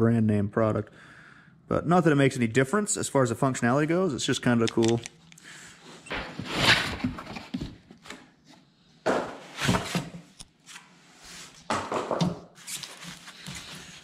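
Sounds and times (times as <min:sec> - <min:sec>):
cardboard and plastic rustling: 0:06.3 - 0:08.3, 0:12.6 - 0:14.0.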